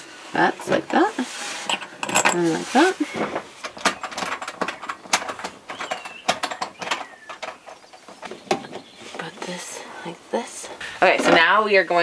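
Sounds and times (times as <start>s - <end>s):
faint squeaks: 1.0s - 10.2s.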